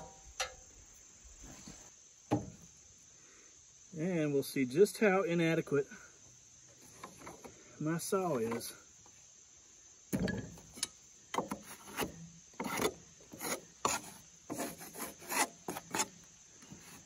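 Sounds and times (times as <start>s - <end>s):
handsaw cutting timber: 11.6s - 16.1s.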